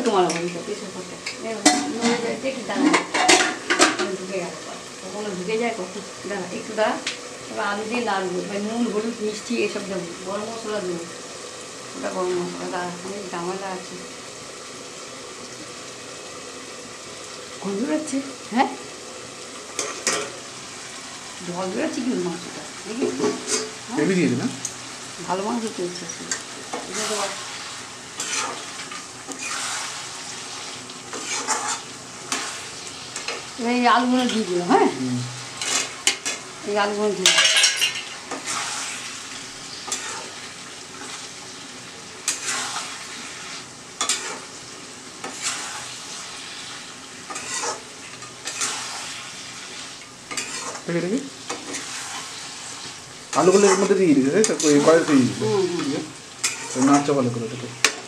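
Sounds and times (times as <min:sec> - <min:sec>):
food sizzling: 0:00.0 - 0:58.0
metal spatula scraping pan: 0:01.6 - 0:04.1, 0:28.2 - 0:30.0, 0:31.1 - 0:33.4, 0:35.6 - 0:36.4, 0:37.2 - 0:39.0, 0:39.7 - 0:40.4, 0:42.2 - 0:44.5, 0:47.3 - 0:49.2, 0:50.3 - 0:50.9, 0:51.5 - 0:57.1.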